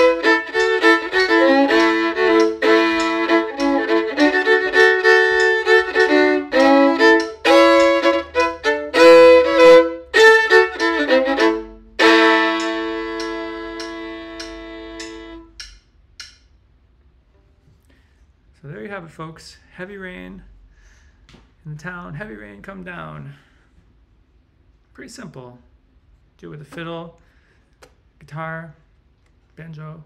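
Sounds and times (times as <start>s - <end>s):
solo fiddle tune: 0.0s - 15.6s.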